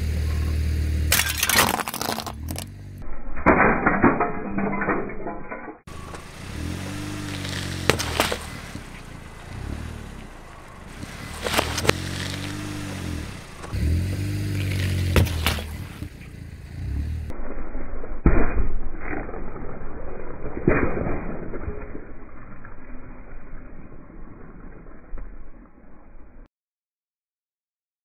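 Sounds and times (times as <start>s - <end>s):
watermelon cracking under tyre: 1.1s - 2.7s, 13.6s - 16.0s.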